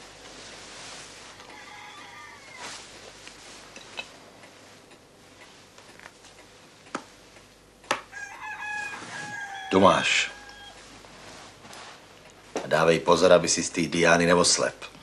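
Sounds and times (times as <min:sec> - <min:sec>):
rooster crowing: 0:01.4 - 0:02.9, 0:08.1 - 0:10.9.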